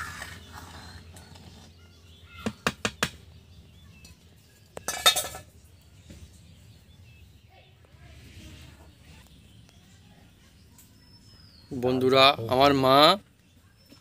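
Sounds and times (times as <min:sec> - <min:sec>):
metal clatter: 0:04.8 - 0:05.6
metal utensils clinking on pot: 0:04.8 - 0:05.6.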